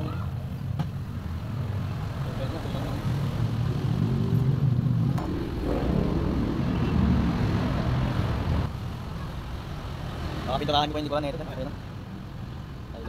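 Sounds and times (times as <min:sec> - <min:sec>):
motor running low rumble: 0:03.7 - 0:08.7.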